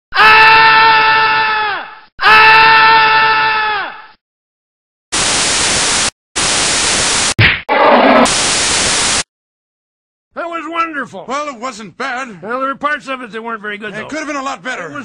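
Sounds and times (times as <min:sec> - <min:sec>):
tv static hiss: 0:05.2 - 0:07.4, 0:08.3 - 0:09.2.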